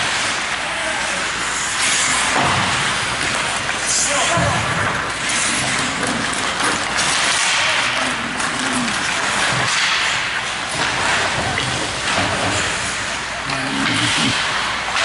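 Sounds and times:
hockey sticks and puck clacking: 0:00.0 - 0:13.0, 0:14.1 - 0:15.0
skates scraping on ice: 0:01.0 - 0:09.7.

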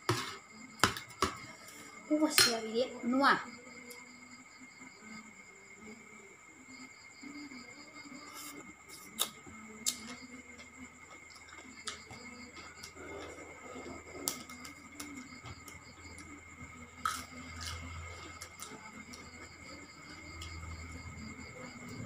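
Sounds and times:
crickets chirring: 0:00.0 - 0:22.0
person chewing food: 0:09.9 - 0:15.8.

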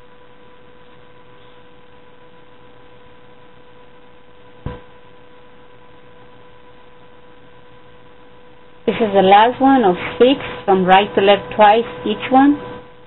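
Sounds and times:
electrical hum: 0:00.0 - 0:13.0
sharp knock: 0:04.6 - 0:04.9.

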